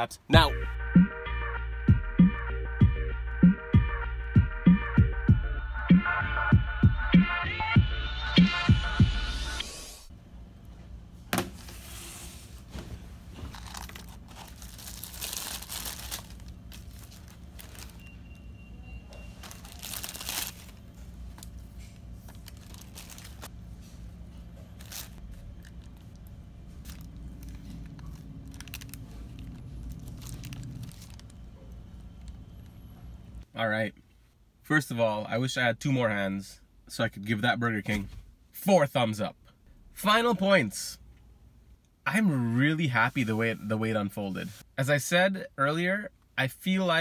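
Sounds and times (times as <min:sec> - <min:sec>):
low room hum: 0:10.0 - 0:46.5
paper wrappers crinkling: 0:13.4 - 0:18.2, 0:19.2 - 0:23.5, 0:24.7 - 0:31.5.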